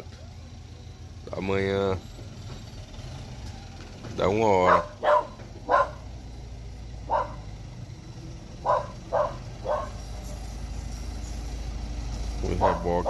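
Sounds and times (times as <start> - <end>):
dog barking: 4.6 - 6.1, 7.0 - 7.5, 8.6 - 10.0, 12.6 - 13.0.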